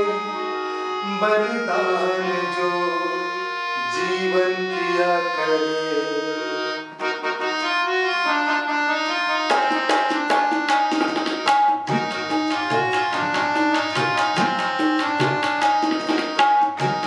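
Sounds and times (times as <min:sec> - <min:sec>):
harmonium melody: 0:00.0 - 0:17.0
tabla drum strokes: 0:10.0 - 0:17.0.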